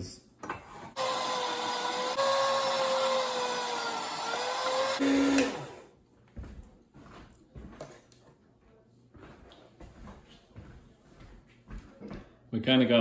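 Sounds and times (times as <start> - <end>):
electric meat slicer humming: 1.0 - 5.9.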